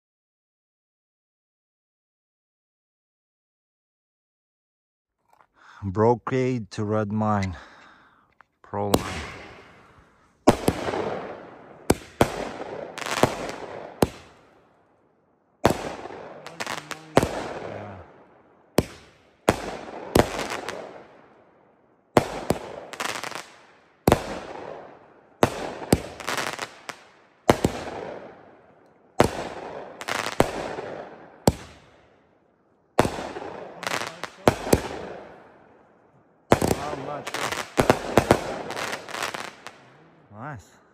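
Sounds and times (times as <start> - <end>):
firework reports with hiss: 8.9 - 11.1, 33.8 - 35.1.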